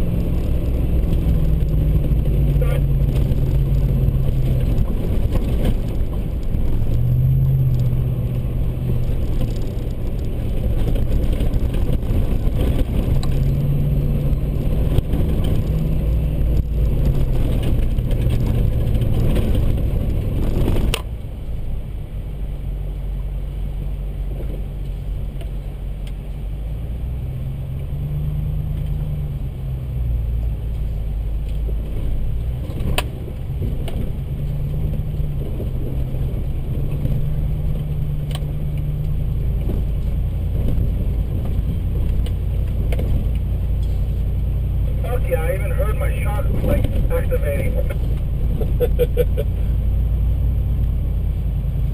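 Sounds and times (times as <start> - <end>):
tyres on dirt trail: 0.0 - 51.9
truck engine revving: 42.8 - 50.8.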